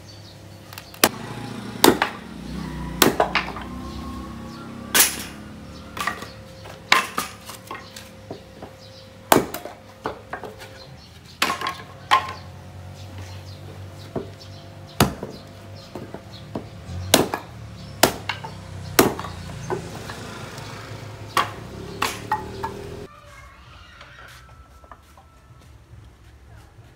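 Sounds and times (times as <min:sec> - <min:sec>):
hatchet chopping wood: 0:00.9 - 0:03.7, 0:04.9 - 0:08.0, 0:09.3 - 0:10.5, 0:11.4 - 0:12.4, 0:15.0 - 0:20.4, 0:21.2 - 0:22.8.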